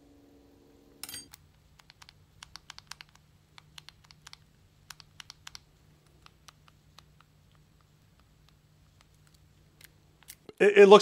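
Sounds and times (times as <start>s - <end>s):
sharp metallic clink: 1.0s - 1.4s
light irregular clicks: 1.3s - 10.5s.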